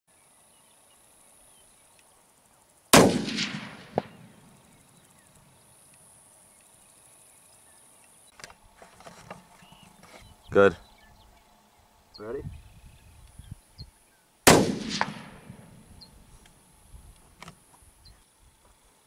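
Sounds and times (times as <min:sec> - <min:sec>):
rifle shot: 0:02.9 - 0:04.5, 0:14.4 - 0:15.9.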